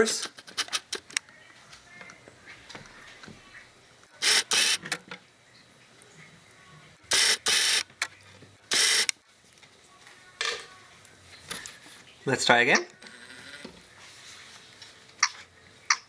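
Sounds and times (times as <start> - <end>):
camcorder lens motor whirring: 4.2 - 4.8, 7.1 - 7.9, 8.7 - 9.2, 13.0 - 13.8.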